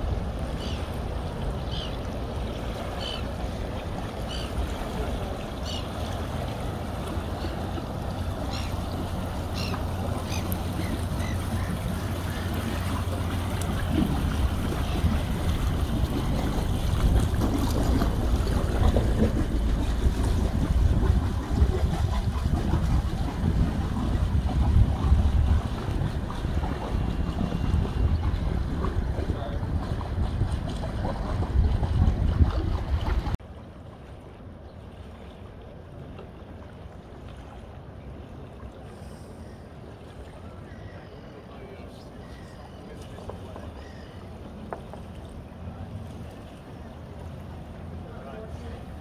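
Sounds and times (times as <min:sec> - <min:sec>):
lapping water: 0:00.0 - 0:33.4
boat engine humming: 0:00.0 - 0:49.0
wind gusts on microphone: 0:10.7 - 0:33.4.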